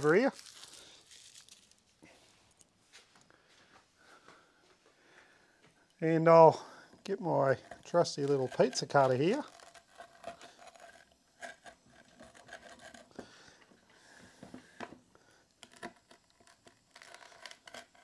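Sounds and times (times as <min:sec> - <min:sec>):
pizza cutter scraping through crust: 0:07.6 - 0:13.4, 0:15.7 - 0:18.0.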